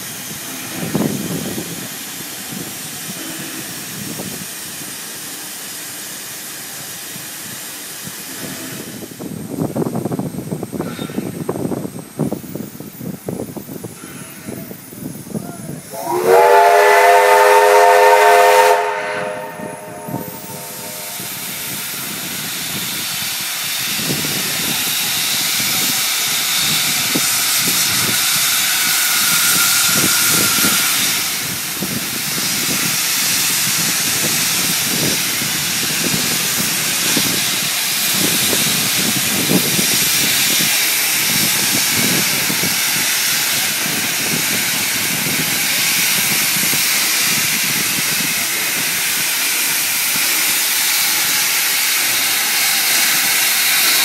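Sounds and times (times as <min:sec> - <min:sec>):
steam locomotive hissing steam: 0:00.0 - 0:54.0
low locomotive beats: 0:15.4 - 0:24.9.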